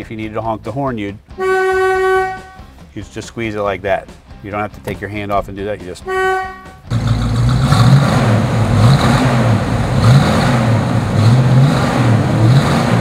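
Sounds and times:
car engine revving: 0:06.9 - 0:13.0.

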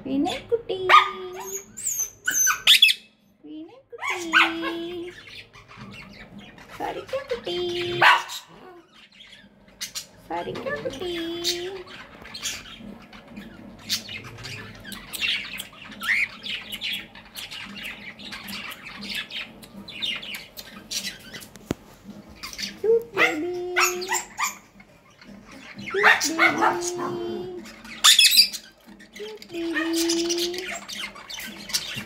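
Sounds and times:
cockatiel chirping and squawking: 0:01.4 - 0:03.1, 0:11.5 - 0:21.7, 0:22.4 - 0:29.1, 0:29.8 - 0:32.0.

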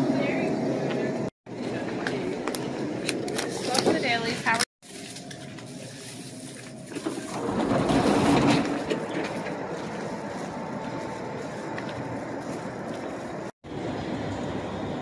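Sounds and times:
steady vehicle noise: 0:05.2 - 0:15.0.

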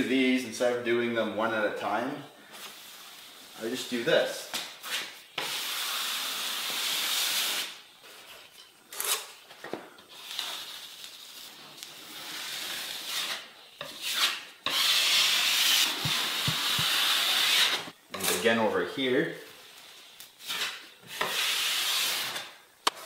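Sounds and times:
taping knife scraping drywall: 0:04.8 - 0:07.8, 0:11.9 - 0:18.5, 0:20.4 - 0:23.0.

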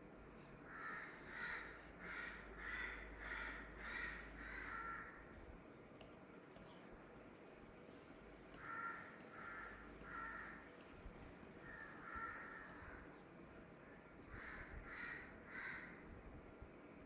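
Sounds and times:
faint bird calls: 0:00.6 - 0:05.4, 0:07.9 - 0:16.1.

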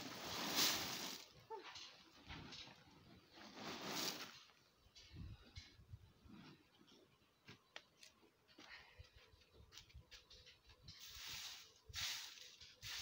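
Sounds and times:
dry straw rustling: 0:00.0 - 0:01.4, 0:10.9 - 0:13.0.

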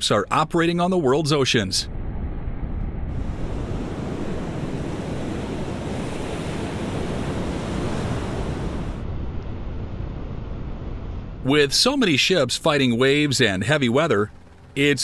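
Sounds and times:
wind: 0:00.0 - 0:15.0
sea waves: 0:03.1 - 0:09.2.

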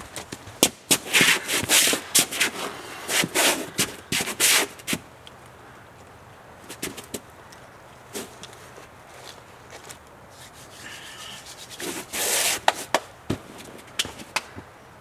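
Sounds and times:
scraping on nylon crash pad: 0:00.6 - 0:05.0, 0:08.1 - 0:14.4.

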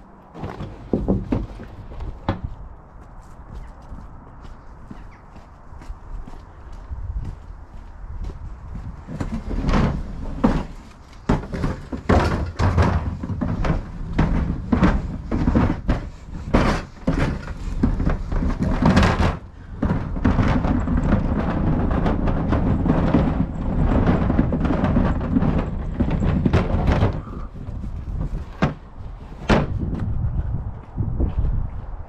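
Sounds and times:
bin wheels rumbling over paving: 0:00.0 - 0:02.5, 0:05.7 - 0:30.5
bin knocking and thudding: 0:00.3 - 0:02.5, 0:09.1 - 0:30.0.

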